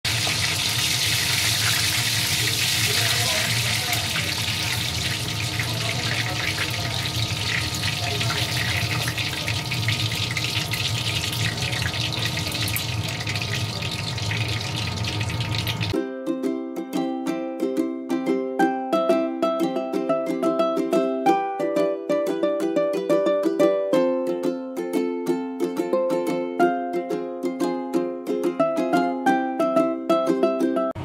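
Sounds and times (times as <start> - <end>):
oil sizzling in a wok: 0.1 - 16.0
ukulele music: 2.5 - 10.0, 15.3 - 31.0.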